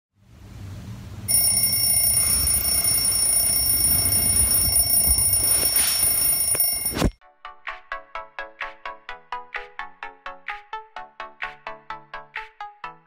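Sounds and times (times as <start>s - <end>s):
high-pitched electronic alarm tone: 1.3s - 7.2s.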